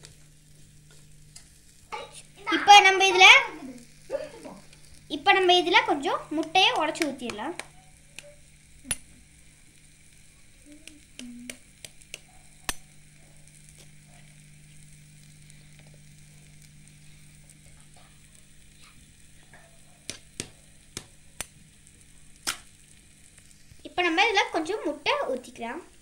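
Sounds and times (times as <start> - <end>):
faint steady hum: 0.0 - 26.0
eggshell cracking taps: 6.4 - 9.1, 10.8 - 12.8, 20.0 - 21.6.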